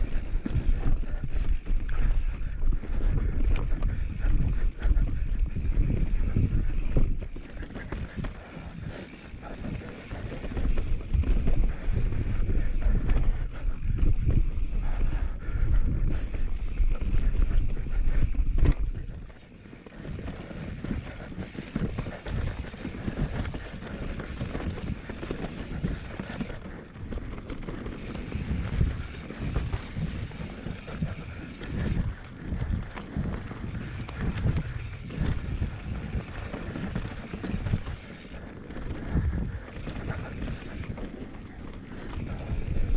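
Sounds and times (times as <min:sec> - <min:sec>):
wind buffeting microphone: 0:00.0 - 0:19.3, 0:20.0 - 0:42.9
bike rattling and knocking: 0:00.0 - 0:42.9
tyre noise: 0:16.2 - 0:42.9.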